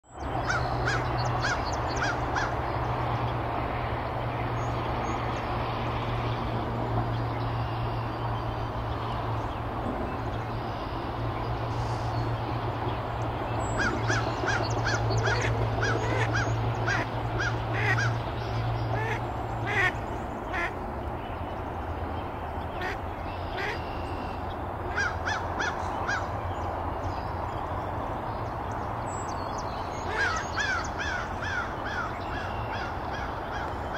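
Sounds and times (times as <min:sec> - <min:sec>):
steady low hum: 0:00.1 - 0:33.9
duck quacking: 0:15.2 - 0:17.1, 0:17.7 - 0:18.1, 0:18.9 - 0:20.8, 0:23.6 - 0:23.8.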